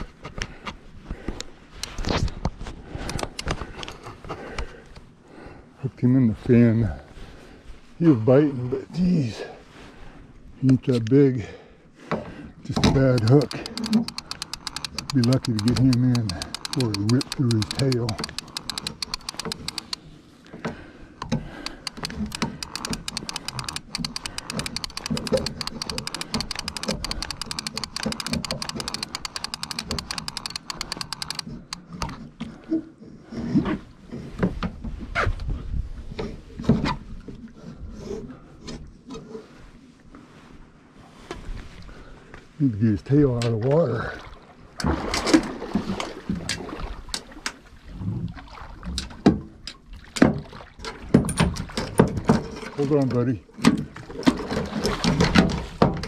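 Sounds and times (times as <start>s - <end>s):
fishing reel ratcheting clicks: 13.0s - 20.0s, 21.6s - 32.0s.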